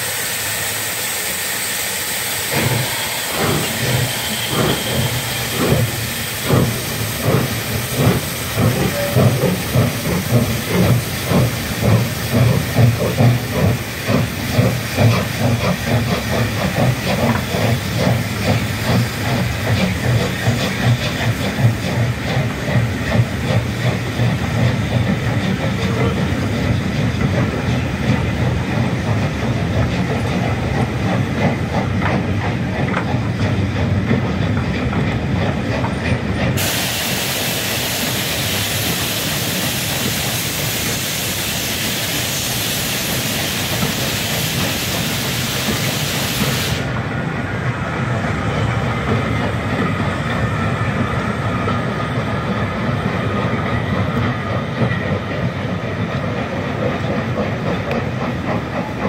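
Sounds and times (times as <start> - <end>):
loud steam hiss: 0.0 - 32.8, 36.5 - 53.6
train coaches rumbling past: 0.0 - 59.0.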